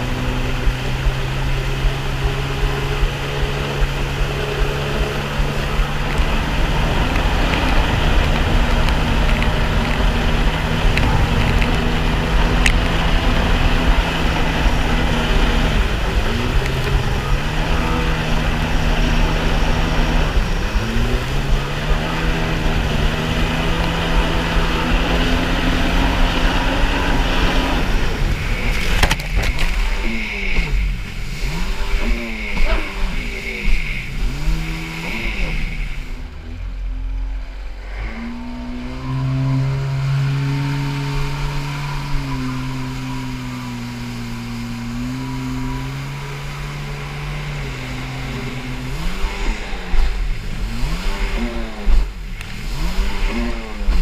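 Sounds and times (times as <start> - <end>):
jet ski engine droning: 0.0 - 54.0
wind and water spray rushing: 0.1 - 32.2.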